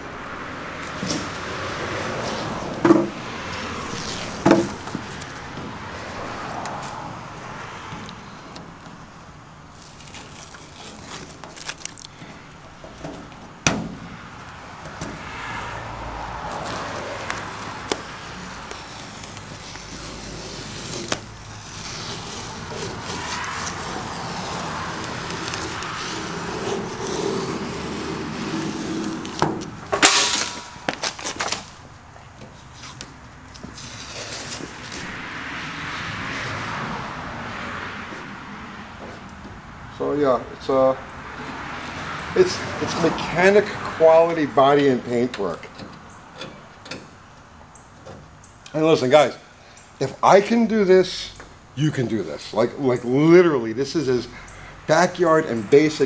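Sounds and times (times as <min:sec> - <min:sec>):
masking tape peeling and tearing: 0:03.6 - 0:07.5, 0:09.7 - 0:15.2, 0:16.2 - 0:35.2
paper ripping and crumpling: 0:03.9 - 0:05.4, 0:09.8 - 0:12.2, 0:16.5 - 0:29.4, 0:30.3 - 0:31.8.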